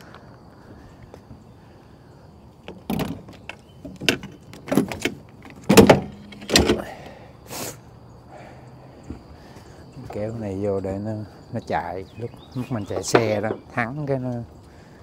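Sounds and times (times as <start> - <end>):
gear clanking in truck bed: 2.7 - 7.1, 12.8 - 13.8.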